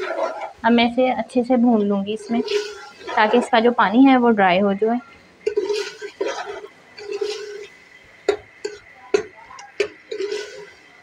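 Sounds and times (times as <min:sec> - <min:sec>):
spoon scraping metal pot: 0:00.0 - 0:00.7, 0:01.8 - 0:03.8, 0:05.4 - 0:10.9.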